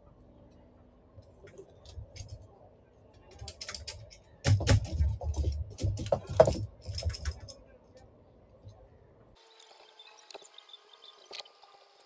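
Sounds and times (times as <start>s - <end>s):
clattering knocks: 4.4s - 7.5s.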